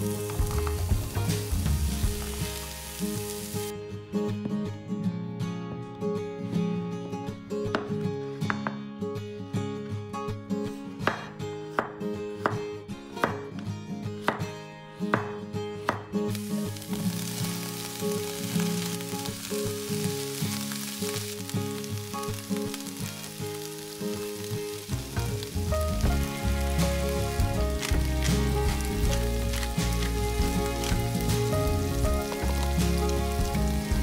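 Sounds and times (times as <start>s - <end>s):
food sizzling in oil: 0.0s - 3.7s, 16.3s - 34.0s.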